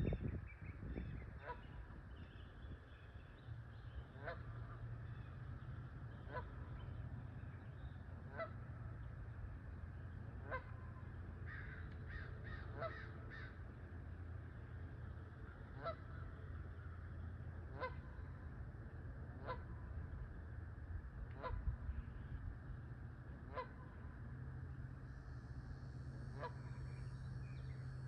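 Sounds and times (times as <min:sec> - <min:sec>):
geese honking: 0:04.2 - 0:04.9, 0:06.2 - 0:06.8, 0:08.3 - 0:08.6, 0:10.4 - 0:13.6, 0:15.7 - 0:16.3, 0:17.7 - 0:18.3, 0:19.4 - 0:19.7, 0:23.5 - 0:24.0, 0:26.3 - 0:26.8.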